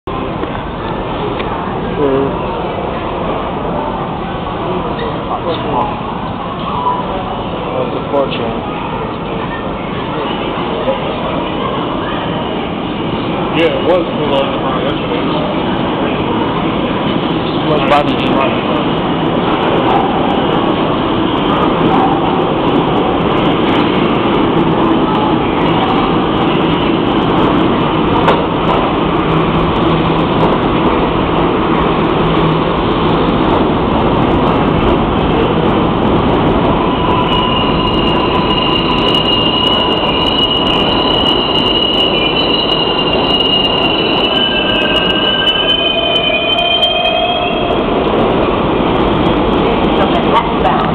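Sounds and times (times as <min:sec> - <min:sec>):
train wheels rumbling on rails: 0:00.1 - 0:50.9
train brakes squealing: 0:36.6 - 0:47.9.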